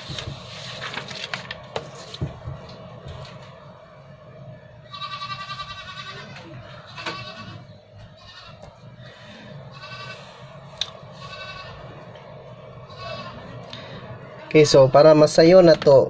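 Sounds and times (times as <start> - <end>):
animal wavering cry: 12.9 - 13.6.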